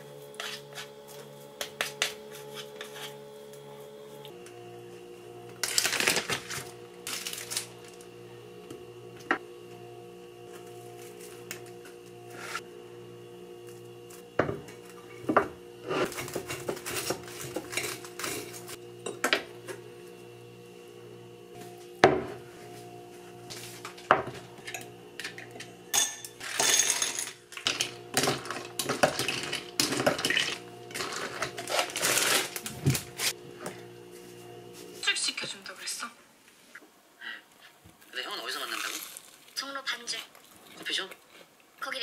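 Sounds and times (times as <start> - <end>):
glass clinking on stone counter: 24.6 - 27.4.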